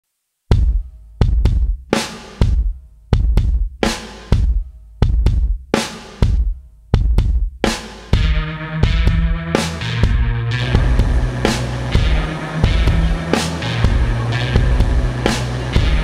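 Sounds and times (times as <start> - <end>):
heavy drum beat: 0.5 - 16.0
sustained bass and chord tones: 8.2 - 16.0.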